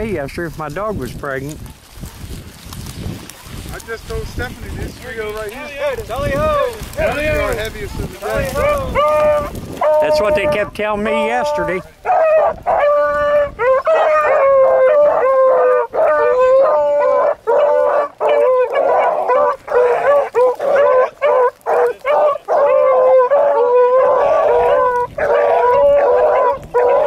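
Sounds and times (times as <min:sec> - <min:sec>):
dogs baying: 0:05.5 - 0:27.0.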